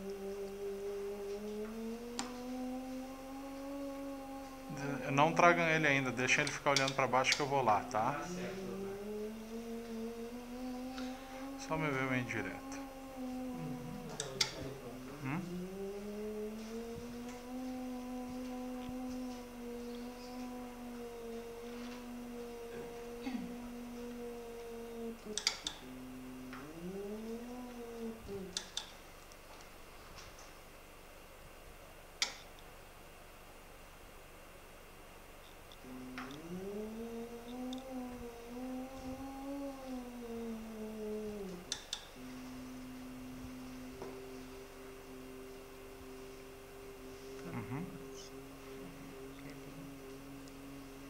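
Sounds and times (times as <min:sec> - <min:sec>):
machine feedback tone: 0:00.0 - 0:28.9, 0:35.8 - 0:51.0
sharp clicks: 0:06.4 - 0:07.6, 0:25.2 - 0:25.8, 0:28.3 - 0:29.4, 0:32.2 - 0:32.7, 0:41.7 - 0:42.1.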